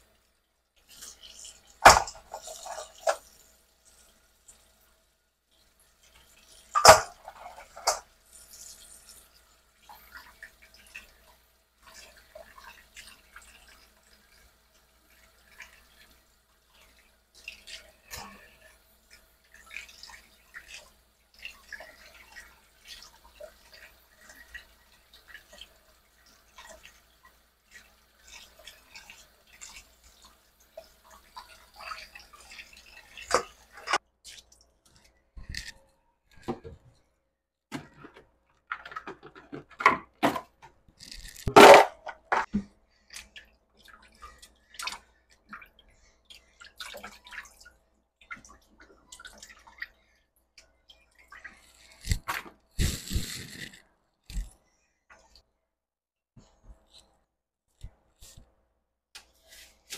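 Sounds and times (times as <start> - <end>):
water splashing in a metal sink: 0.0 - 37.0, 37.7 - 52.7
short hiss: 52.8 - 53.8.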